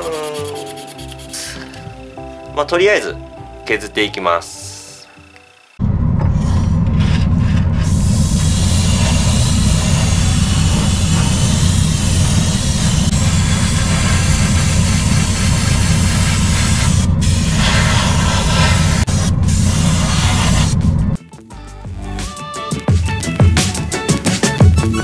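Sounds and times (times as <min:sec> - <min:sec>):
airbrush spraying hiss: 0:00.0 - 0:01.9, 0:06.4 - 0:21.1
extraction fan hum: 0:05.5 - 0:21.2.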